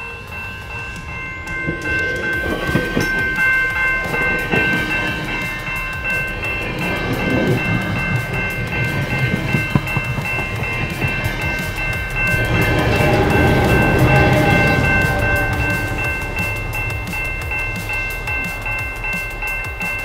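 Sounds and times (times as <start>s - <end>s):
level crossing bells ringing: 0.0s - 20.0s
train wheels rumbling on rail: 0.0s - 20.0s.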